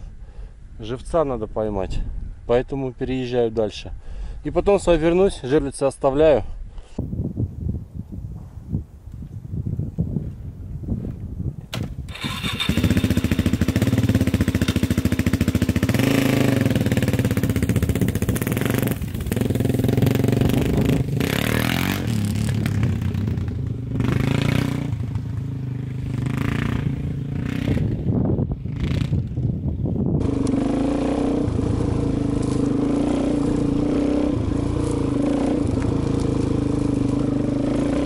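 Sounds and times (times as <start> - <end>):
dirt bike engine: 11.7 - 38.0.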